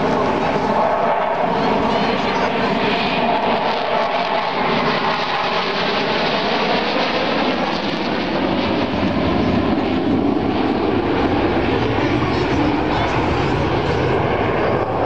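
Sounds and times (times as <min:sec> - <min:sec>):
jet fighters flying overhead: 0:00.0 - 0:15.0.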